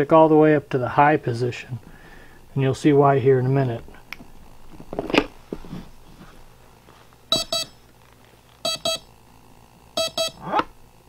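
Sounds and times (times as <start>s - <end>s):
motor double beeps: 7.3s - 7.8s, 8.6s - 9.2s, 9.9s - 10.6s.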